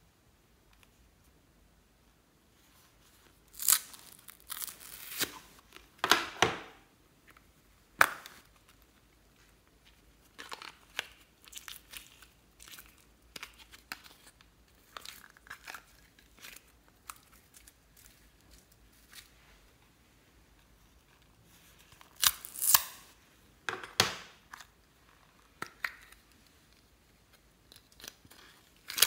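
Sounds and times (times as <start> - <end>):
sticky slime crackling: 3.5 - 5.5.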